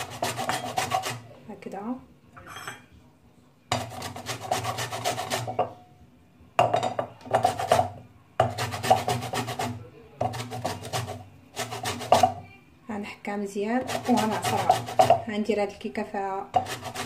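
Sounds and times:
lemon rasping on metal grater: 0.0s - 1.2s, 3.8s - 5.5s, 8.4s - 12.3s, 13.8s - 15.3s, 16.6s - 17.0s.

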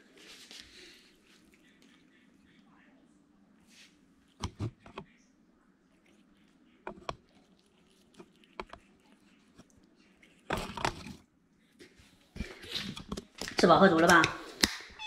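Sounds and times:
cat chewing and licking: 0.7s - 2.8s, 5.8s - 13.6s.

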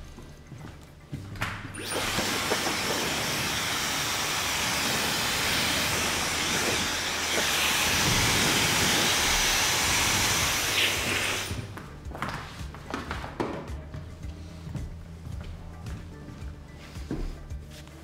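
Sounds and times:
hair dryer blowing: 1.8s - 11.8s.

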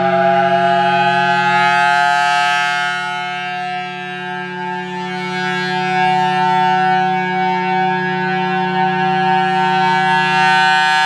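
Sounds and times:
warning siren steady tone: 0.0s - 11.0s.

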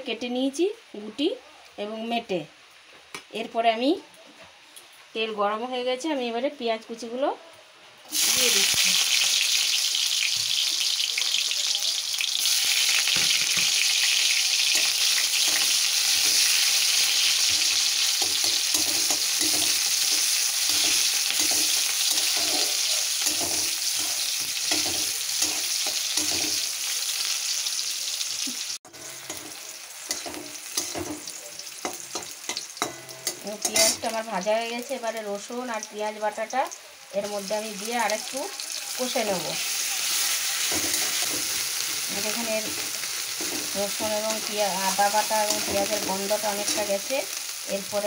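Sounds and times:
onions sizzling in hot oil: 8.0s - 48.0s
metal spatula scraping: 14.7s - 26.9s, 28.9s - 34.2s, 39.7s - 47.0s.

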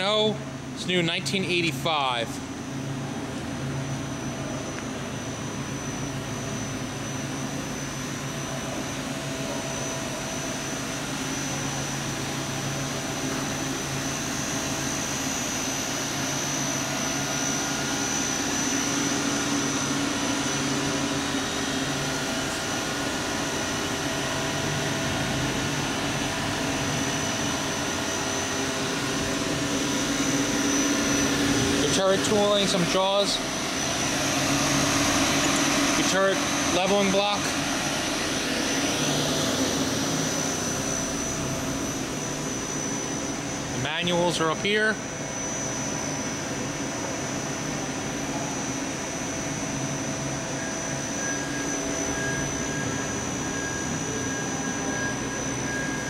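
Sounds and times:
machine hum and hiss: 0.0s - 56.0s
thin high whine: 0.0s - 56.0s.

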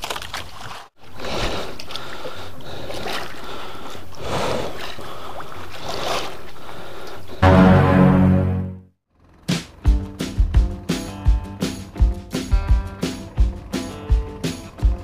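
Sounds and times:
sea water lapping against boat: 0.0s - 7.4s.

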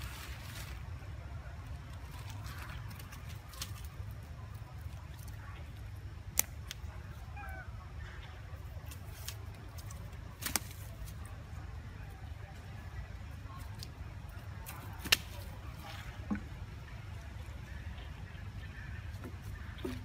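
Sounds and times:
faint chirping calls: 6.8s - 8.9s.

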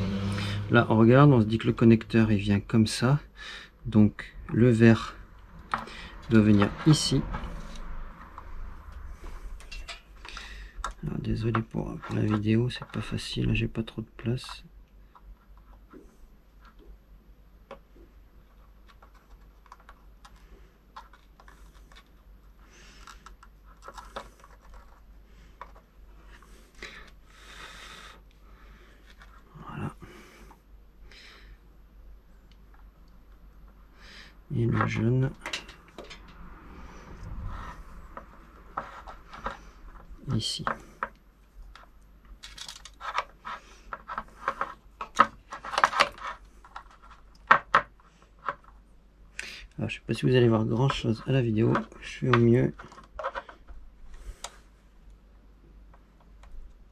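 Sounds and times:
small plastic clicks and scratches: 18.5s - 25.9s, 37.5s - 48.8s, 50.8s - 54.6s.

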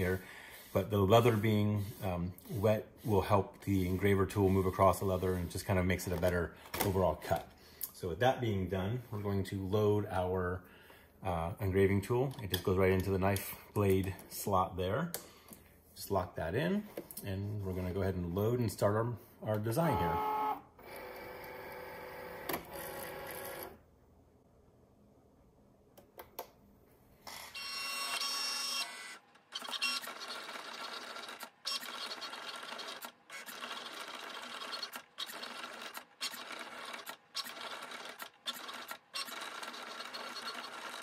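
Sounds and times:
cutting machine motors whirring: 19.8s - 23.7s, 27.3s - 41.0s.

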